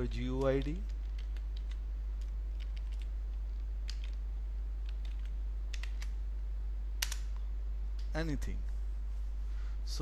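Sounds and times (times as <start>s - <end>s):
low electrical hum: 0.0s - 10.0s
keyboard keys clicking: 0.4s - 3.1s, 4.8s - 6.1s.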